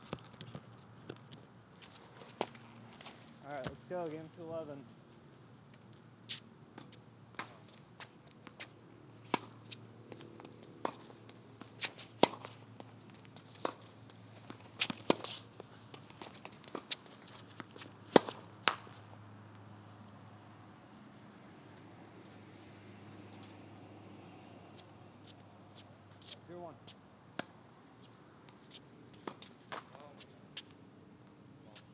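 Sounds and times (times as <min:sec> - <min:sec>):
footstep scuffs: 0:00.0 - 0:03.7
racquet striking tennis ball: 0:09.3 - 0:11.1, 0:11.8 - 0:12.6, 0:14.5 - 0:15.4, 0:17.6 - 0:19.0.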